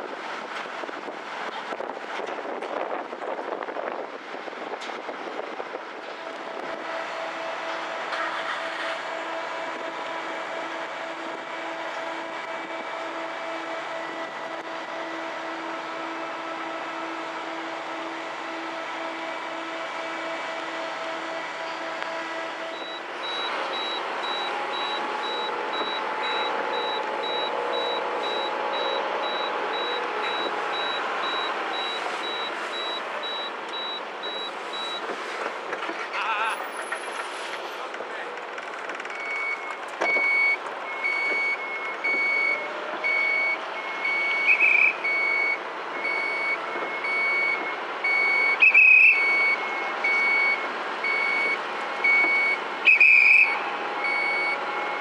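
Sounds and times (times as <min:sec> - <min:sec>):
ferry machinery noise: 0:00.0 - 0:55.0
low electronic beep: 0:17.9 - 0:35.0, 0:39.1 - 0:55.0
high-pitched repeating beep: 0:22.8 - 0:35.0.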